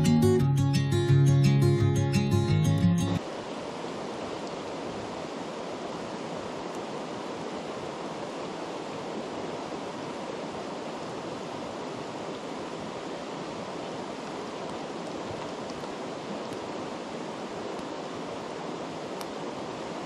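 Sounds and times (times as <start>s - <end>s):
river rushing over stones: 3.2s - 20.0s.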